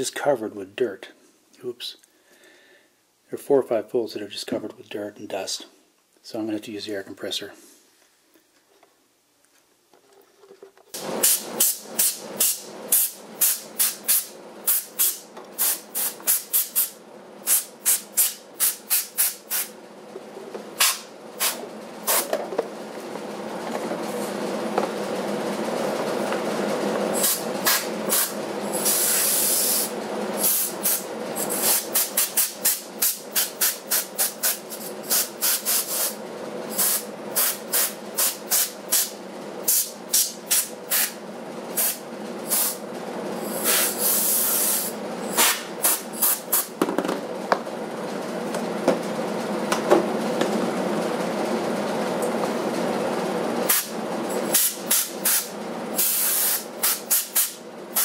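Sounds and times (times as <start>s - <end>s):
compressed air hissing blasts: 11.0s - 19.8s, 20.8s - 22.3s, 27.2s - 42.8s, 43.4s - 46.7s, 53.6s - 58.0s
steady running noise: 19.9s - 28.7s.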